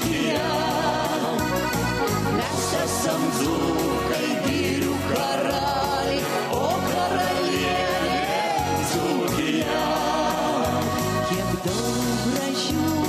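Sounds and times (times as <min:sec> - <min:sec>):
band accompaniment: 0:00.0 - 0:13.0
group of voices singing: 0:00.0 - 0:13.0
woman singing: 0:02.4 - 0:10.9, 0:11.8 - 0:13.0.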